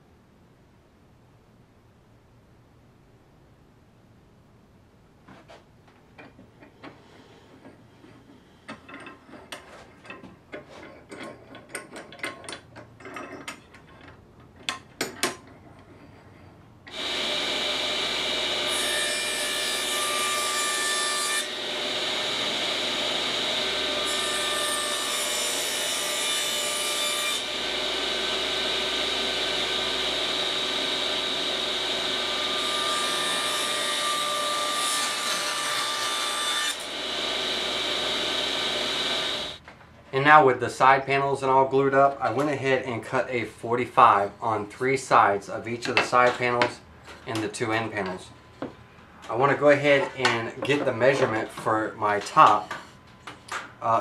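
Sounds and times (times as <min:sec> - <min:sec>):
saw blade cutting wood: 0:16.9 - 0:39.6
table saw whine: 0:16.9 - 0:39.6.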